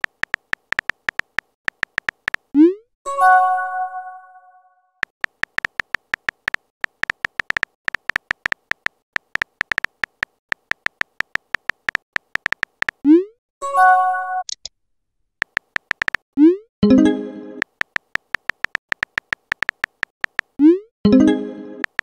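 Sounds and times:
keyboard clicks: 0.0 - 2.6, 5.0 - 13.0, 15.4 - 16.3, 17.6 - 20.8, 21.8 - 22.0.

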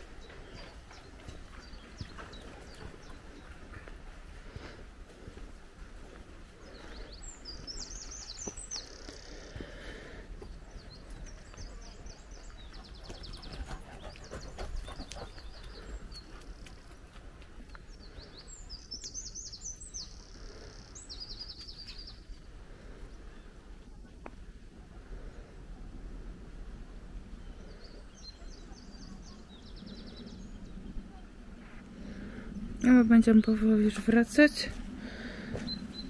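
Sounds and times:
steady low rumble: 22.3 - 36.0.

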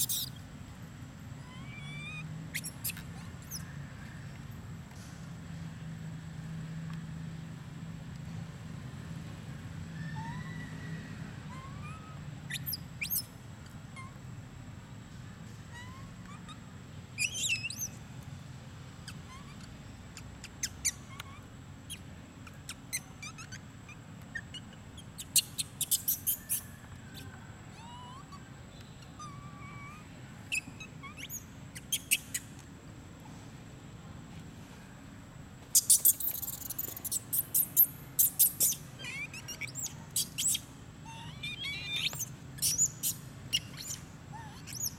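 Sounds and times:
high-pitched chirps and squeaks: 0.0 - 0.4, 1.4 - 3.8, 11.5 - 14.2, 15.6 - 18.0, 19.0 - 32.6, 35.7 - 44.9.

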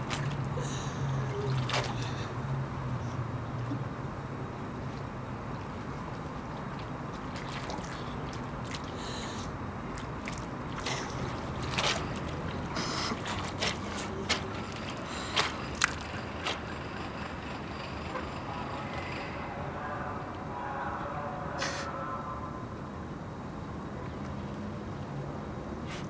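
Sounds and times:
water splashing and sloshing: 0.0 - 18.3
low background hum: 0.0 - 26.0.

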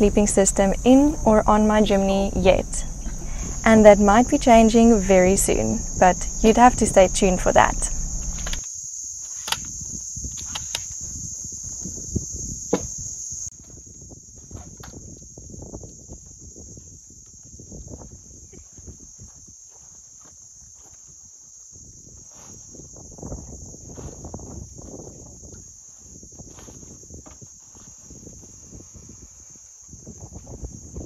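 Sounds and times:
high-pitched insect chorus: 0.0 - 31.0
sharp clicks and knocks: 6.2 - 8.6.

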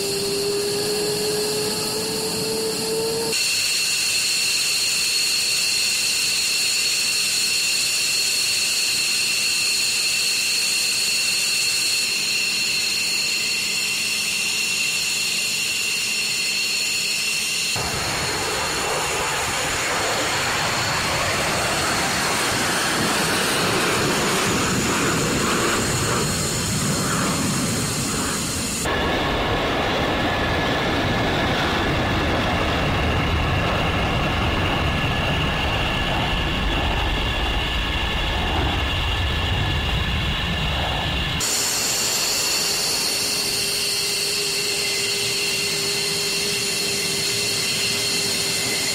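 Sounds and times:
jet engines roaring with afterburners: 0.0 - 48.9
jet engines whining: 0.0 - 48.9.

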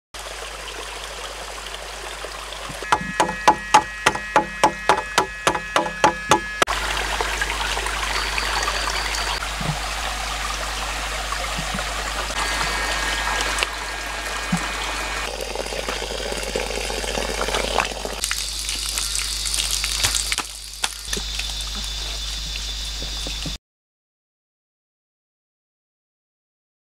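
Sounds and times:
water trickling in a stream: 0.2 - 4.8, 5.6 - 23.6
sharp ringing knocks: 2.8 - 6.7.

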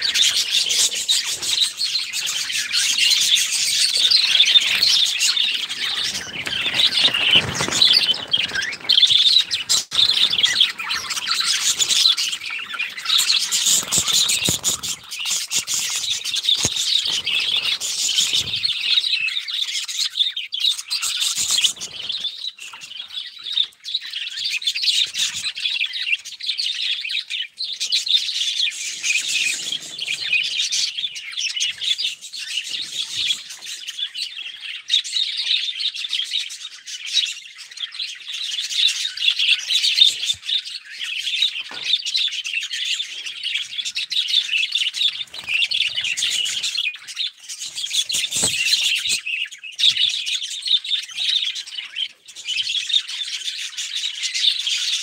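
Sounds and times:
budgerigars chattering: 0.0 - 22.2.

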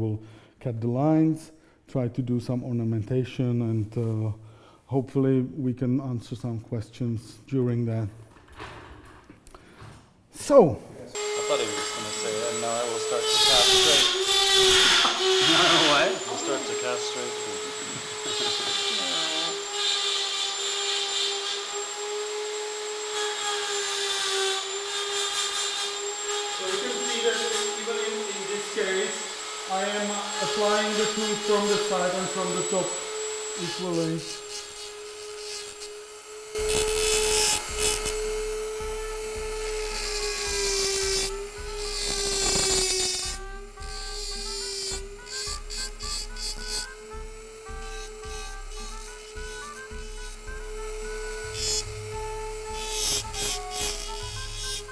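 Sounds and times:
rotary tool whine: 11.2 - 54.9.

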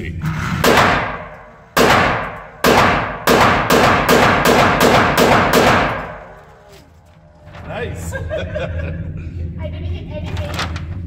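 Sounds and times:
pistol shots echoing: 0.6 - 6.4.

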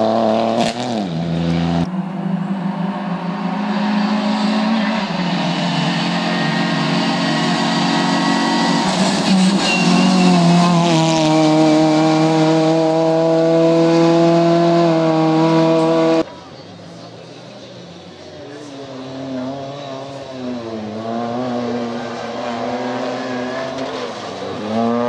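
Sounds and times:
rally car engine at high revs: 0.0 - 1.9, 2.5 - 16.3, 18.6 - 25.0
brief high squeal: 8.3 - 10.7.

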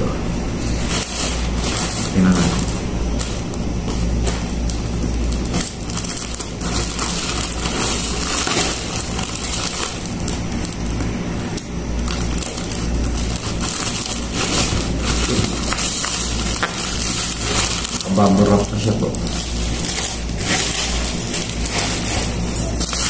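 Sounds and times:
steady low hum: 0.0 - 23.0
plastic mailer bag crinkling: 0.8 - 23.0.

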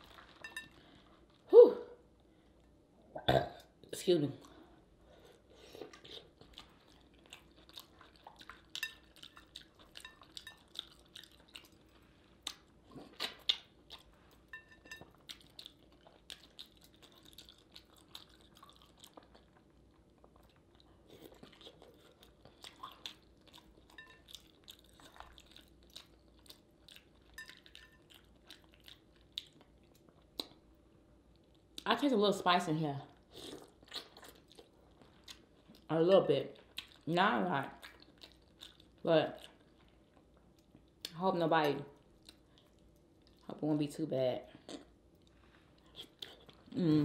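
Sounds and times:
person chewing wet smacks: 5.8 - 14.2, 14.9 - 30.6, 33.2 - 35.9, 36.6 - 37.0, 37.6 - 41.2, 44.6 - 46.7.

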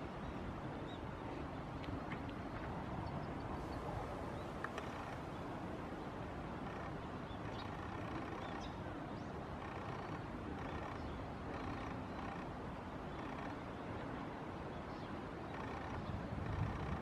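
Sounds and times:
faint clicks: 4.6 - 5.2.

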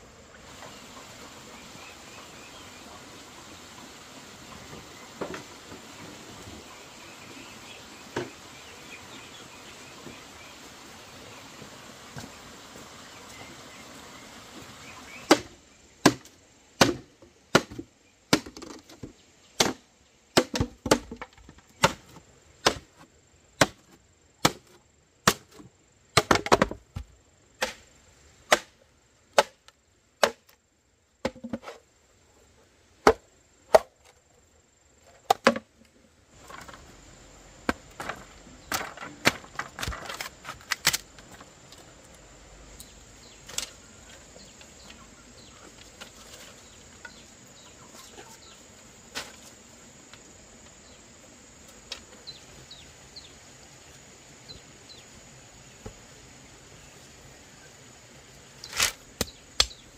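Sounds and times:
machete chopping into bamboo: 15.2 - 18.9, 19.6 - 19.8, 20.4 - 21.2, 21.8 - 22.9, 23.6 - 23.8, 24.4 - 25.6, 27.6 - 27.9, 28.5 - 28.7, 29.4 - 29.6, 30.2 - 30.6, 58.7 - 59.8
bamboo splitting cracks: 15.3 - 19.8, 20.4 - 23.0, 23.6 - 25.6, 26.2 - 26.8, 27.6 - 27.9, 28.5 - 30.6, 37.7 - 41.8, 58.7 - 59.8.

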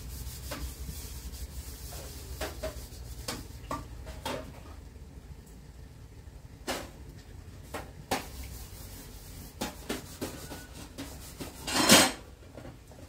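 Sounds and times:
cooking utensils knocking and rubbing: 0.0 - 0.9, 1.7 - 4.8, 9.4 - 12.8.

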